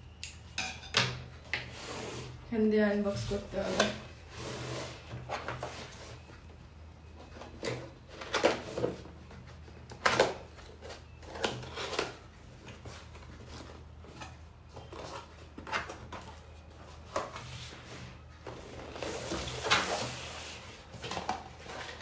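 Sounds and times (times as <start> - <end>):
cardboard box scraping and rustling: 3.1 - 6.3, 16.8 - 22.0.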